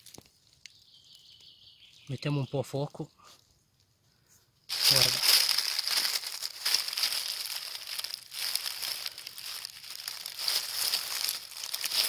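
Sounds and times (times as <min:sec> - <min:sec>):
dry leaves crackling and rustling: 0:04.7 - 0:12.0.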